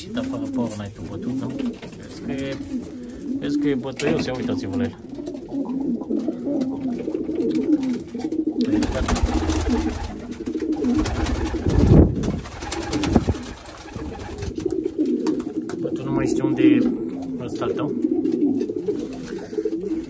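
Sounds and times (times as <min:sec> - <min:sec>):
pigeons flapping and scuffling: 0:00.0 - 0:16.0, 0:16.8 - 0:20.0
pigeons cooing: 0:00.0 - 0:20.0.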